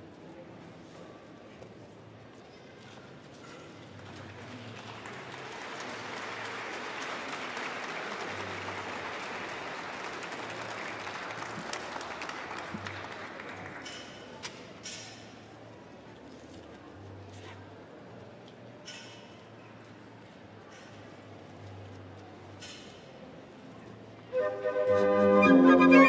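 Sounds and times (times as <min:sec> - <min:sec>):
audience applauding: 0:04.7 - 0:13.9.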